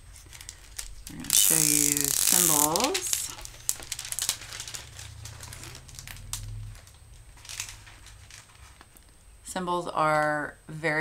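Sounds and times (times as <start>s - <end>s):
plastic film crinkling: 0.0s - 9.2s
low handling rumble: 2.5s - 9.4s.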